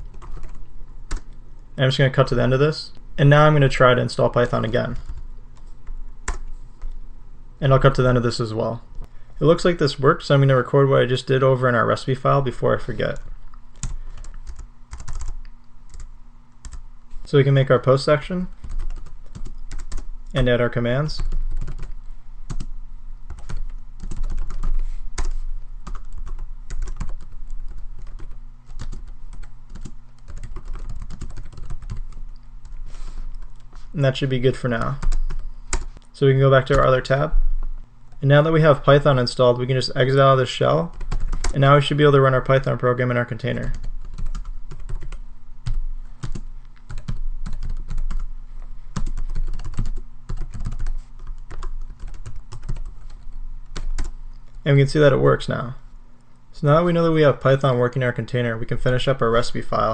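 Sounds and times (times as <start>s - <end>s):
computer keyboard typing: 0.0s - 1.3s, 5.0s - 6.9s, 13.1s - 16.8s, 18.5s - 20.1s, 21.2s - 22.7s, 23.3s - 33.6s, 40.9s - 41.6s, 43.7s - 48.3s, 49.0s - 54.2s
steady low hum: 0.0s - 59.9s.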